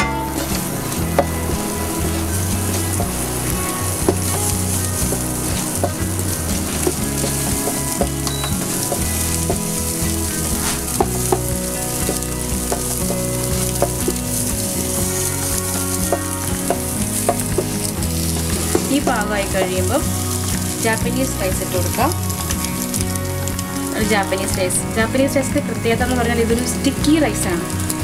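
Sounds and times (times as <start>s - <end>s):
spatula tapping a pan: 0.0s - 21.8s
spatula scraping a pan: 0.0s - 22.9s
eggs sizzling in hot oil: 0.0s - 28.0s.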